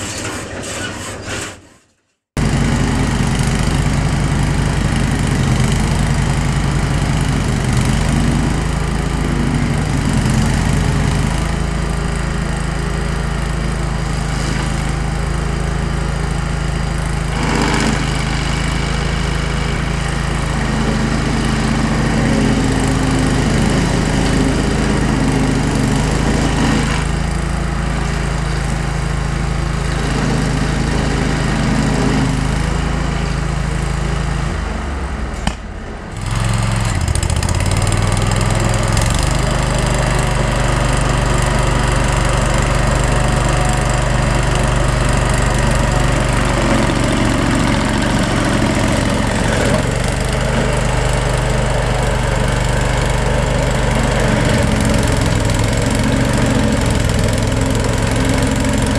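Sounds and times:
stump grinder engine running: 0:02.4 - 0:58.9.

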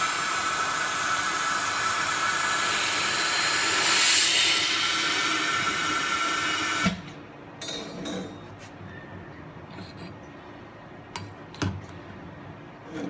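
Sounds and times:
machine hissing and whining: 0:00.0 - 0:07.0.

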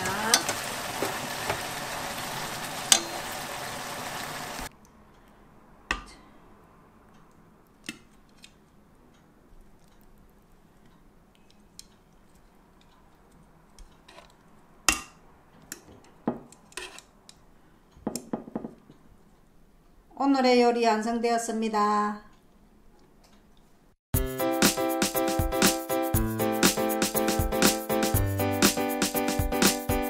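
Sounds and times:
chicken sizzling in a frying pan: 0:00.0 - 0:04.7.

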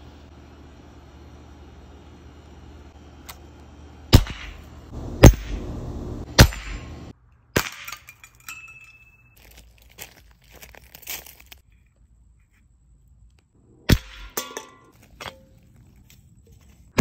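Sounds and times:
air pistol shots: 0:04.1 - 0:04.6, 0:05.2 - 0:05.6, 0:06.4 - 0:06.9, 0:13.9 - 0:14.4.

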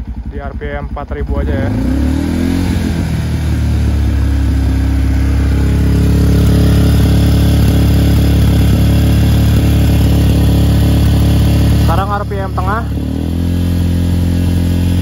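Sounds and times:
motorcycle engine running steadily: 0:00.0 - 0:15.0.

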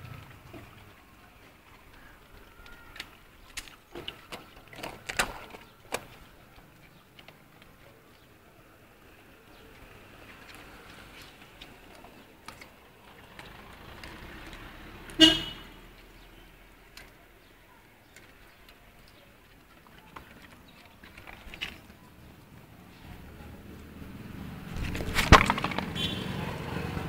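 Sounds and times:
low street noise: 0:00.0 - 0:27.0
vehicle horn toot: 0:15.2 - 0:15.8, 0:26.0 - 0:26.4.

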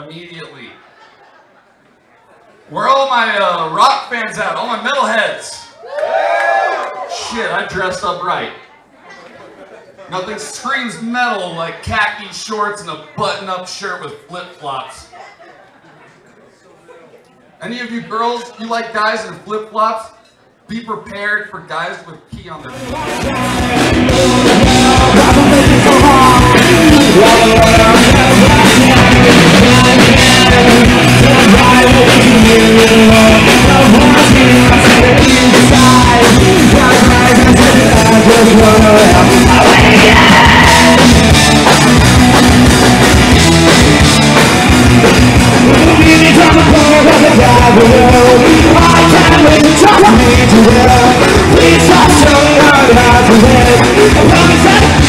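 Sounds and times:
drums: 0:22.2 - 0:55.0
bass guitar: 0:22.7 - 0:55.0
electric guitars: 0:22.8 - 0:55.0
rock vocals: 0:22.8 - 0:55.0.

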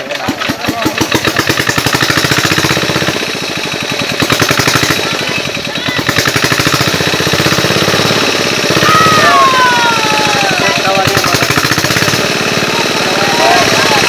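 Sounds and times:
small engine chugging: 0:00.0 - 0:14.0.

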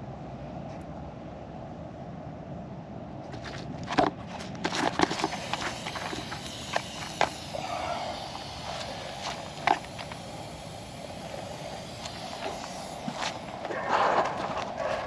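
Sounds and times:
faint steady background noise: 0:00.0 - 0:15.0
hoses clicking and knocking: 0:03.9 - 0:14.8.

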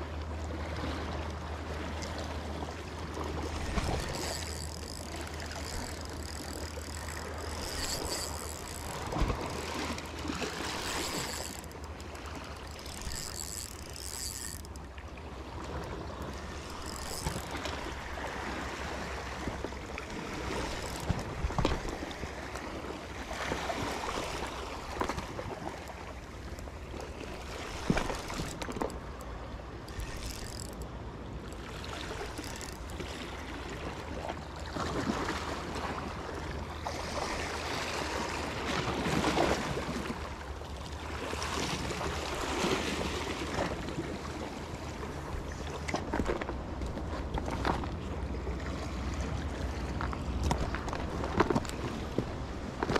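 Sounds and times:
seawater lapping and sloshing: 0:00.0 - 0:52.9.

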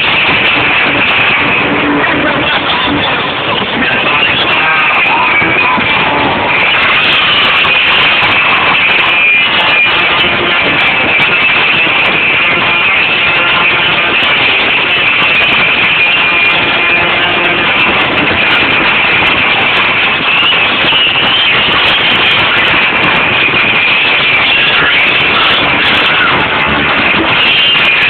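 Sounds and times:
loud distorted live band music: 0:00.0 - 0:28.0.

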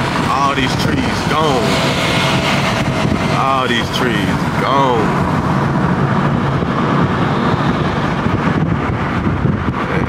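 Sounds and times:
car rumbling: 0:00.0 - 0:10.0
wind buffeting microphone: 0:00.0 - 0:10.0.

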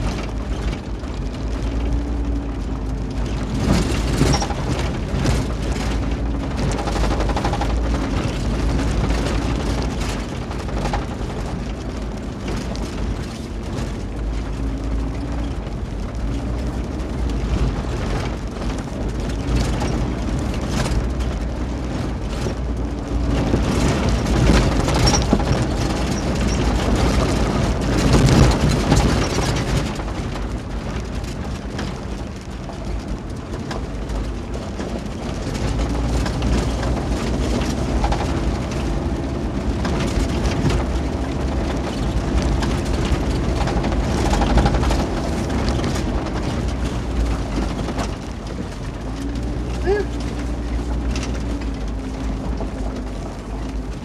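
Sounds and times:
car engine hum: 0:00.0 - 0:54.0.

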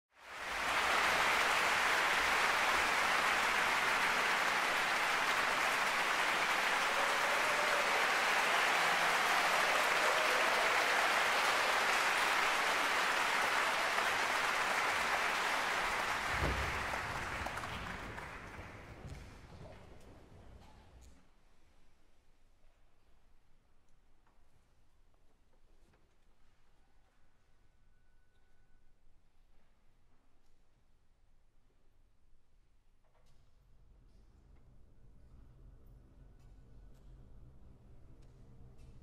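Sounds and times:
audience applauding: 0:00.2 - 0:19.4.

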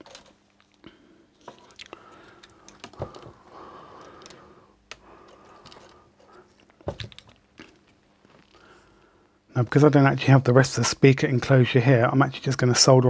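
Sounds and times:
wires rustling: 0:00.0 - 0:09.0
wires clicking: 0:01.5 - 0:08.6.

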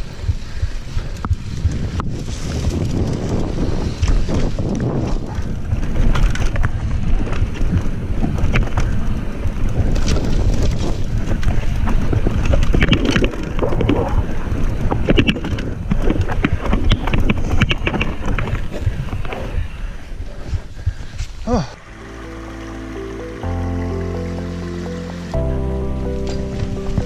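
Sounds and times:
bike rattling over bumps: 0:00.0 - 0:21.3
wind buffeting on microphone: 0:00.0 - 0:21.8
bike tyre rumble: 0:00.0 - 0:24.6.

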